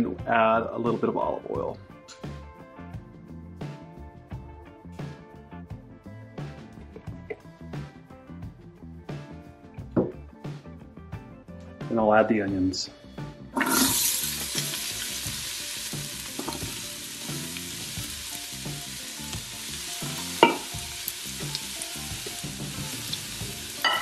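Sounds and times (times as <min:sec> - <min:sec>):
onion sizzling in hot oil: 0:13.6 - 0:24.0.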